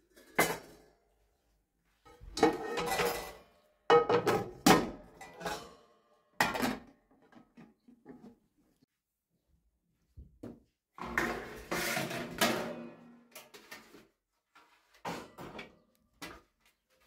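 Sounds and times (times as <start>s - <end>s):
pots and pans clattering: 0.0s - 1.0s, 2.1s - 7.7s, 11.0s - 13.9s, 15.0s - 15.8s.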